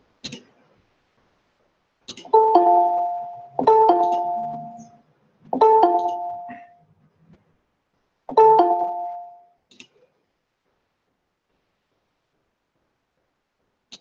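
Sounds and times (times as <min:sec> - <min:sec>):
two-note notification chime: 0:02.3 - 0:04.9, 0:05.6 - 0:06.6, 0:08.3 - 0:09.4.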